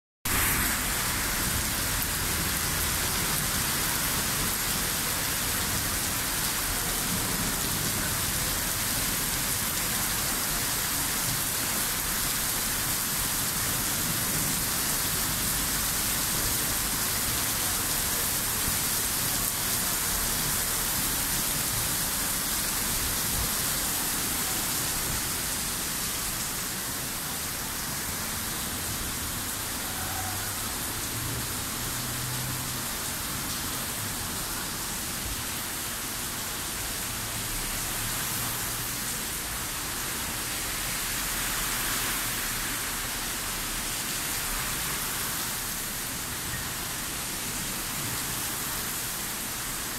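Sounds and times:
heavy rain on street: 0:00.3 - 0:49.9.

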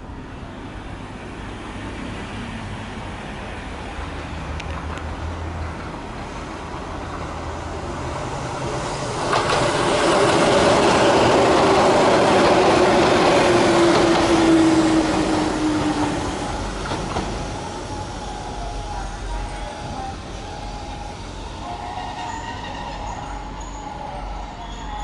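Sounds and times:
train whine sliding down in pitch: 0:07.6 - 0:25.0
wheels clattering over rails: 0:08.6 - 0:17.5.

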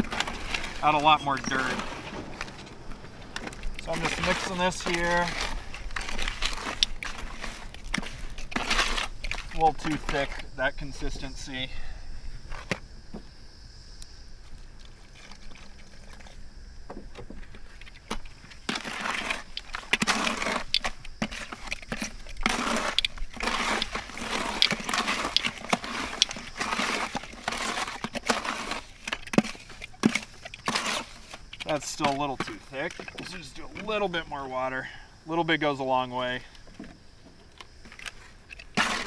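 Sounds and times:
hand squelching mud in bucket: 0:00.0 - 0:11.6, 0:17.7 - 0:34.9, 0:37.9 - 0:39.0.

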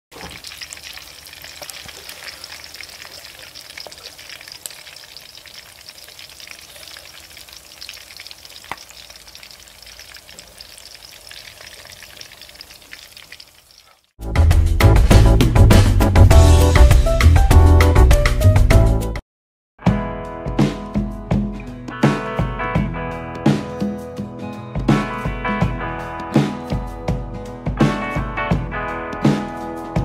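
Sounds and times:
crackles and pops: 0:00.1 - 0:13.9
duck deep-frying in hot oil: 0:00.1 - 0:14.2.

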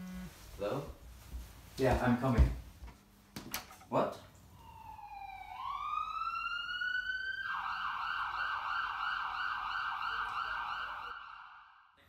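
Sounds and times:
emergency vehicle siren: 0:04.4 - 0:12.0.

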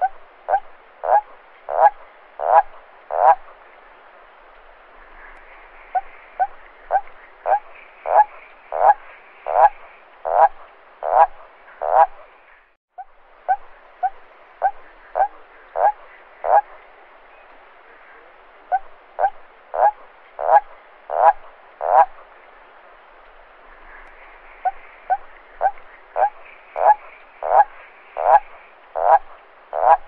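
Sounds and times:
toad croaking: 0:00.0 - 0:03.5, 0:05.9 - 0:12.3, 0:13.0 - 0:16.8, 0:18.6 - 0:22.3, 0:24.0 - 0:30.0.

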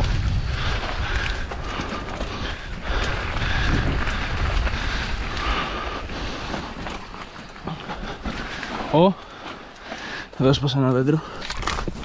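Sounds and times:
wind rumble on microphone: 0:00.0 - 0:08.4
bike rattling and clicking: 0:00.0 - 0:12.0
tyres on dirt and stones: 0:00.0 - 0:12.0.

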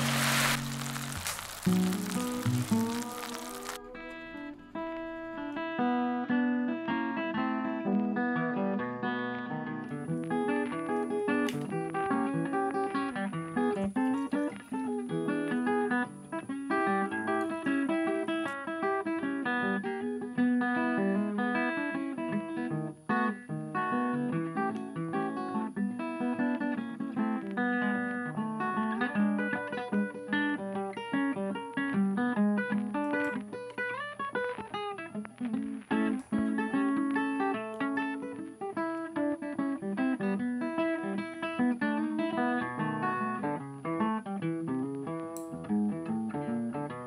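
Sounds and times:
guitar plucking quick notes: 0:00.0 - 0:05.8.

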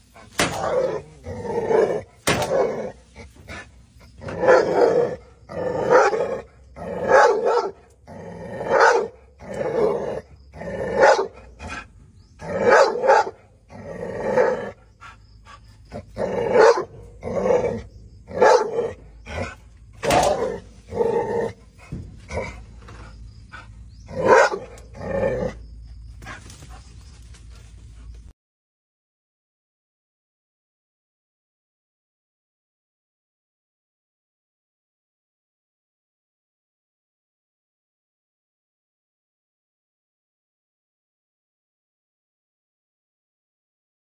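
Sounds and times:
dog barking: 0:04.3 - 0:05.1, 0:05.8 - 0:07.8, 0:08.7 - 0:09.9, 0:11.0 - 0:11.8, 0:12.6 - 0:13.4, 0:16.5 - 0:20.6, 0:23.6 - 0:25.5.

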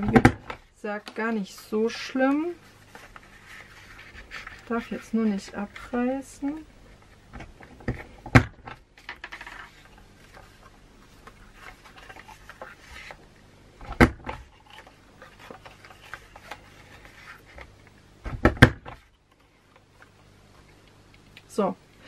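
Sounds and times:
cardstock rustling: 0:01.0 - 0:13.2, 0:14.3 - 0:17.9.

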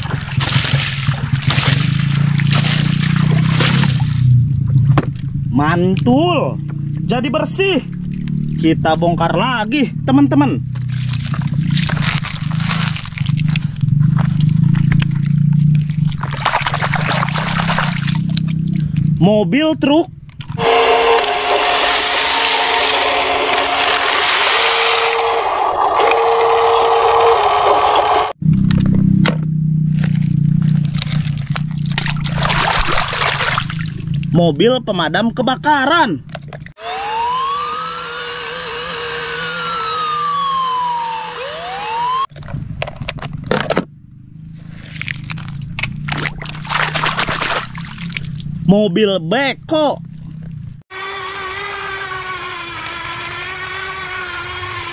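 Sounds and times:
stones rattling and sliding: 0:00.0 - 0:04.0, 0:10.8 - 0:19.0
toy fire truck siren wailing: 0:20.6 - 0:28.4, 0:36.8 - 0:42.3
electric motor whining: 0:20.6 - 0:28.9, 0:36.8 - 0:42.3, 0:50.9 - 0:54.9.

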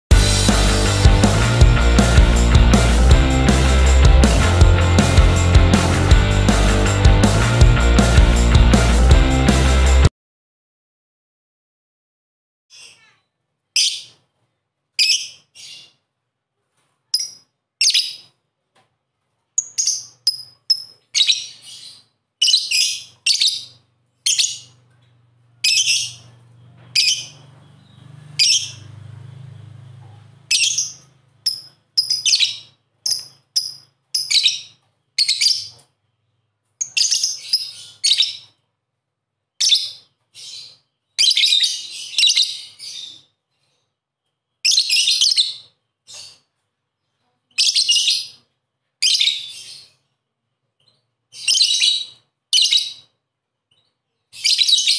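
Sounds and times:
lovebird chirping: 0:13.8 - 0:14.2, 0:17.1 - 0:18.4, 0:19.6 - 0:26.4, 0:27.0 - 0:28.9, 0:30.5 - 0:38.6, 0:39.6 - 0:43.4, 0:47.5 - 0:48.4, 0:50.9 - 0:53.1, 0:53.7 - 0:54.9.

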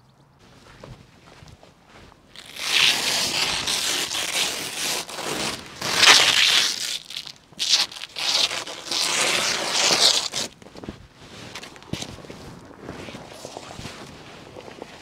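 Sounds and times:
plastic sheet crinkling: 0:02.3 - 0:10.6.

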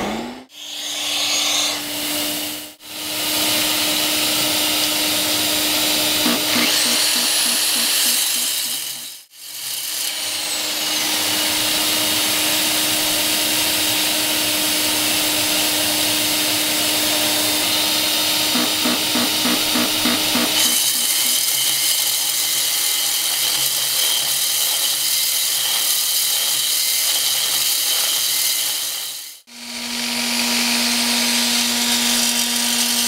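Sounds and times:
vacuum cleaner running: 0:00.0 - 0:09.2, 0:10.5 - 0:21.6
core drill drilling into brick: 0:00.5 - 0:33.0.

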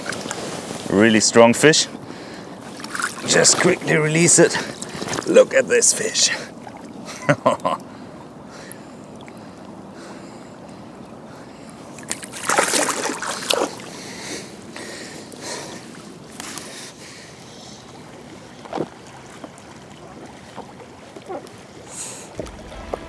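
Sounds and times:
river water flowing: 0:00.0 - 0:23.0
fish splashing in water: 0:02.7 - 0:03.3, 0:12.0 - 0:14.0.

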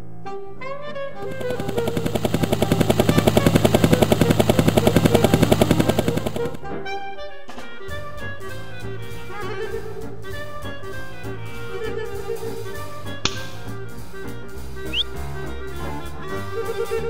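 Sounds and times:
light background music: 0:00.2 - 0:17.0
rapid fluttering rattle: 0:01.2 - 0:06.6.

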